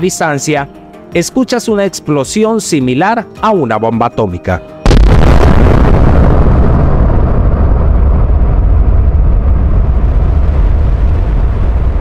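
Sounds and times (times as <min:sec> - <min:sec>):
explosion rumble: 0:04.9 - 0:12.0.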